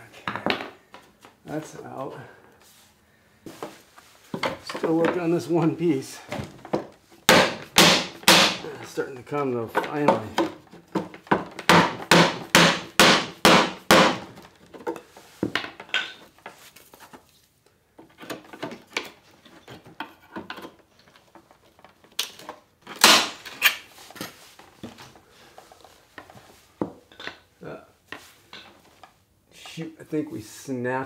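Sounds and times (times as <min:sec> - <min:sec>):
rubber mallet knocking wood: 0:06.8 - 0:08.6, 0:10.0 - 0:14.3.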